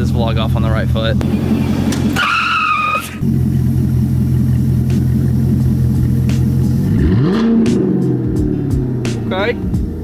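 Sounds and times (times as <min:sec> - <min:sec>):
engine revving: 0:01.2 - 0:10.0
car engine fast idle: 0:03.2 - 0:06.9.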